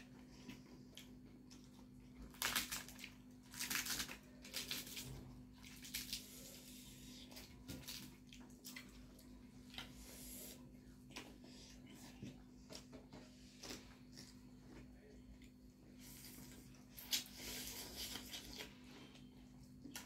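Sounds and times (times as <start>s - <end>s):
wet chewing and mouth noises: 0.0s - 20.0s.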